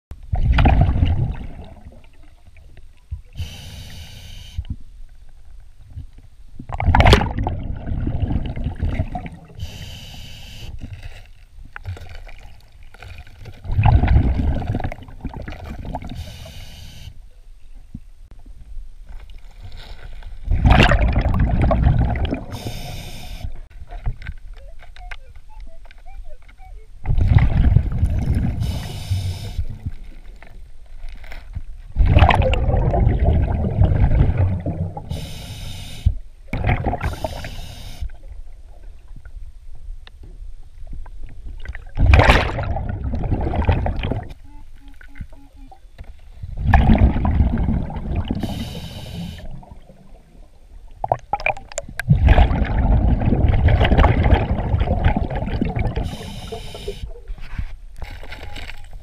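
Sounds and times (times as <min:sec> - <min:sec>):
exhaled bubbles rumbling underwater: 0:00.1 - 0:03.7, 0:04.7 - 0:09.9, 0:11.6 - 0:16.6, 0:20.4 - 0:24.8, 0:25.5 - 0:30.7, 0:31.9 - 0:57.6
regulator inhale hiss: 0:03.4 - 0:04.7, 0:09.6 - 0:10.8, 0:16.1 - 0:17.2, 0:22.5 - 0:23.6, 0:28.6 - 0:29.8, 0:35.1 - 0:36.2, 0:37.0 - 0:38.2, 0:48.4 - 0:49.6, 0:56.0 - 0:57.2.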